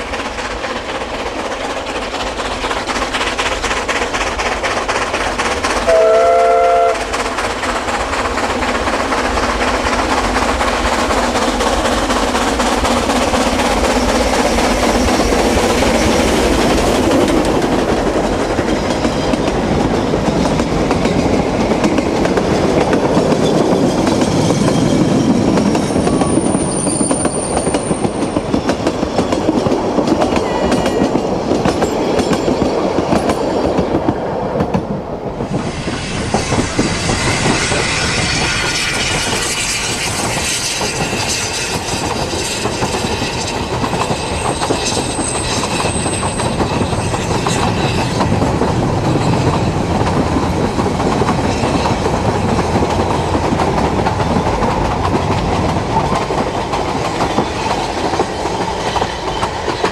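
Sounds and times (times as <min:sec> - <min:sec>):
wheels clicking over rail joints: 0:00.0 - 0:06.0, 0:07.0 - 0:59.9
steam train running: 0:00.0 - 0:59.9
high wheel squeal: 0:23.4 - 0:28.4, 0:35.7 - 0:48.3.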